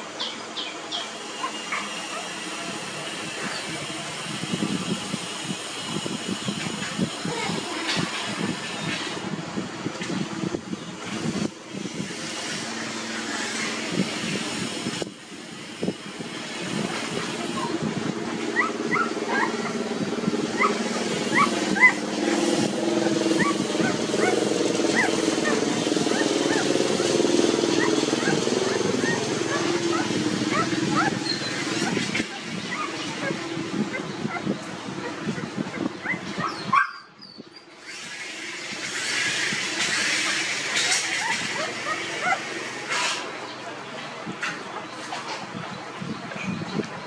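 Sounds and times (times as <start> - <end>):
puppies squeaking and whimpering: 0.6 - 9.3, 9.9 - 43.6
steady low hum: 9.2 - 37.2.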